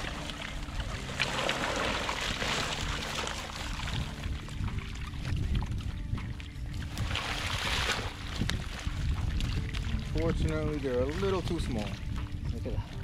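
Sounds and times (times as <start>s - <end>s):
water trickling from net: 0.0s - 6.0s.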